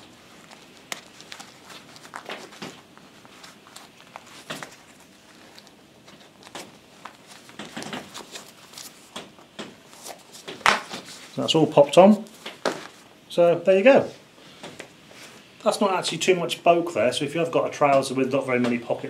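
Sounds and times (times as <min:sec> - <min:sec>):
fabric rustling: 0:00.0 - 0:13.2.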